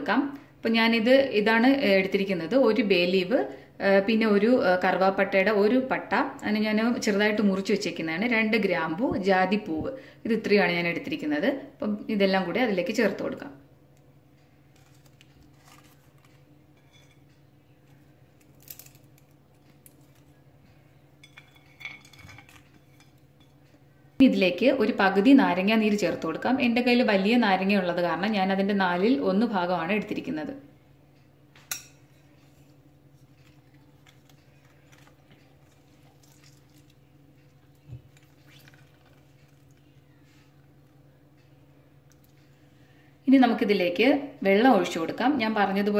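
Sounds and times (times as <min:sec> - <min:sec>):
low steady hum: 0:00.0 - 0:45.9
lemon squeezer squishing: 0:33.1 - 0:39.9
juice dripping: 0:33.2 - 0:41.0.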